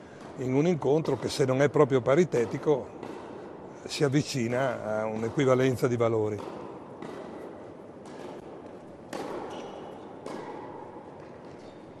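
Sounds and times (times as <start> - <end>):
tennis ball bouncing on court: 0.2 - 3.7, 4.4 - 12.0
racket hitting tennis ball: 1.0 - 1.3, 2.3 - 3.5, 6.3 - 11.9.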